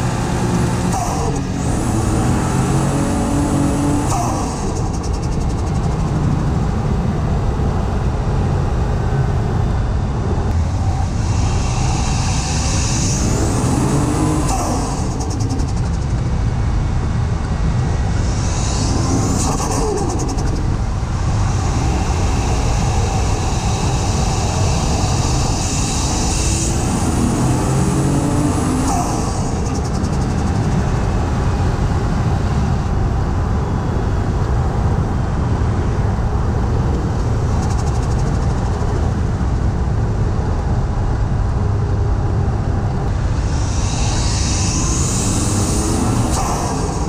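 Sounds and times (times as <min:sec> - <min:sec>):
car engine accelerating: 0:00.0 - 0:07.0, 0:10.4 - 0:32.4, 0:42.6 - 0:47.0
turbo compressor surge flutter: 0:10.3 - 0:32.8, 0:42.6 - 0:47.0.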